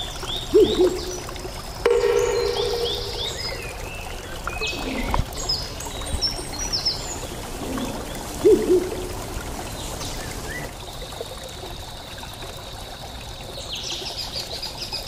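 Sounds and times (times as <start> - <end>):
low bird calls: 0.0 - 5.8
birds chirping: 0.0 - 8.9
running water trickling: 0.0 - 15.0.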